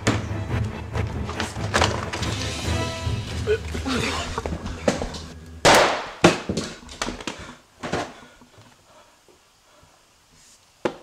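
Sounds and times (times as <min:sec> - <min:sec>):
sharp crack: 0:05.6 - 0:06.8
handgun shot echoing: 0:05.7 - 0:06.2.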